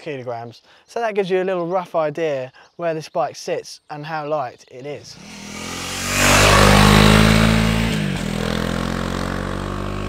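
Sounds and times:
motorcycle engine passing: 5.1s - 10.0s.

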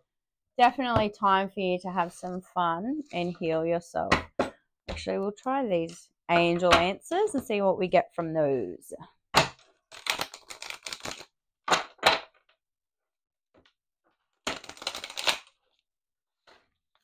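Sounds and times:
cards riffling and slapping: 9.9s - 12.0s, 14.5s - 15.5s.

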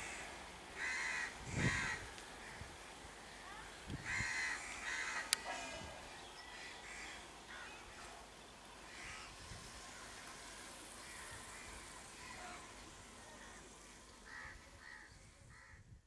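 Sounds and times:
crows cawing: 0.0s - 2.7s, 4.0s - 5.9s, 6.5s - 8.1s, 8.9s - 10.2s, 11.0s - 12.7s, 13.3s - 15.8s
outdoor hiss: 0.0s - 15.7s.

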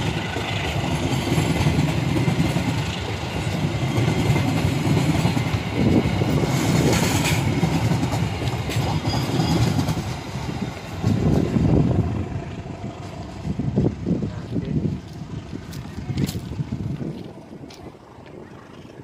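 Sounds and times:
wheels clattering over rail joints: 0.0s - 12.1s
train coaches rolling past: 0.0s - 19.0s.

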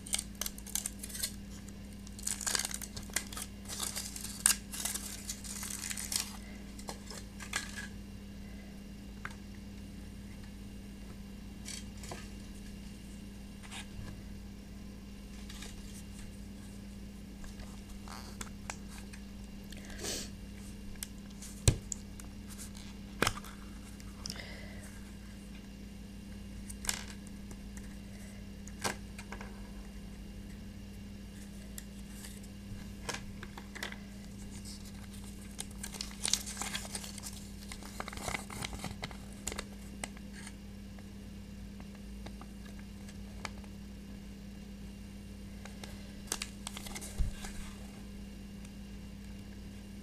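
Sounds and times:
paper leaflet crinkling: 0.0s - 7.9s, 33.5s - 39.7s, 46.2s - 47.7s.

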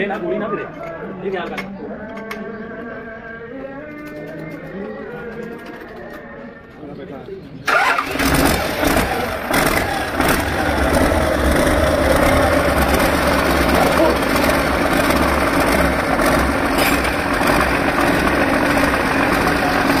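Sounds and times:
diesel engine idling: 7.6s - 20.0s.

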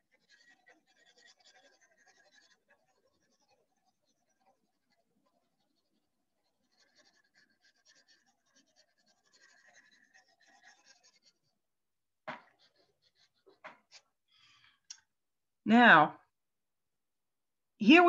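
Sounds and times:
pencil scratching on paper: 0.0s - 11.7s, 12.3s - 14.2s.

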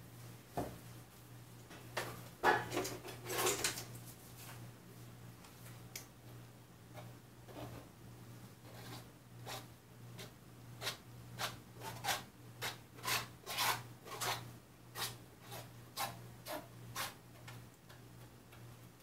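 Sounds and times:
tool scraping paint on canvas: 8.7s - 14.4s, 15.0s - 17.2s.

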